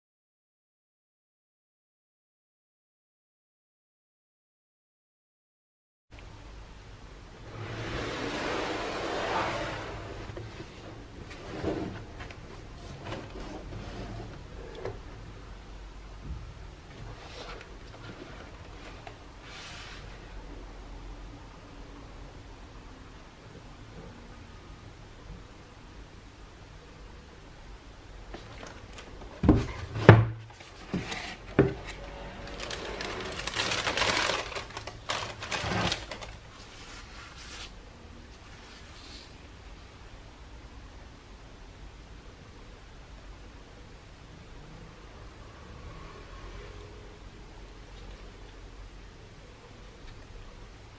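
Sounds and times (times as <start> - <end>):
cardboard box sliding: 7.5 - 12.2, 17.1 - 20.1, 29.4 - 37.7
cardboard scraping and knocking: 29.3 - 32.0
tissue paper crinkling: 32.4 - 37.7.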